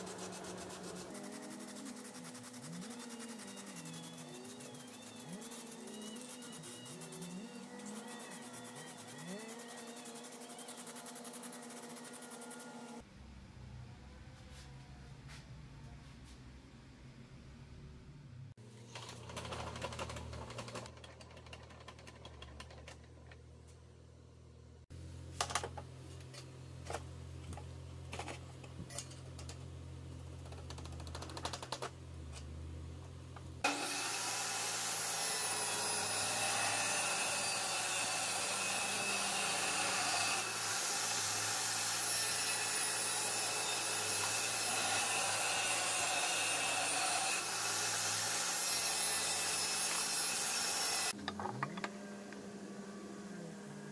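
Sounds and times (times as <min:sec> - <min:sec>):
table saw motor running: 0:00.0 - 0:13.0, 0:33.6 - 0:53.9.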